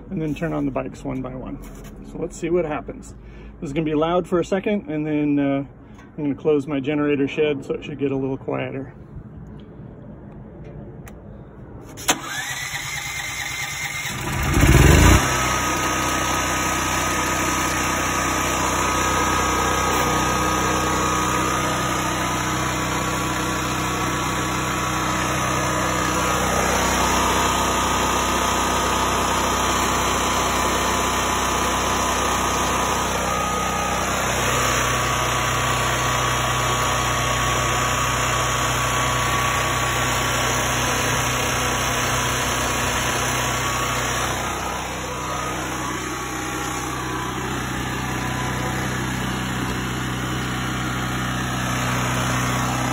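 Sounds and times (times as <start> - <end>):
portable generator running: 11.9 - 52.9.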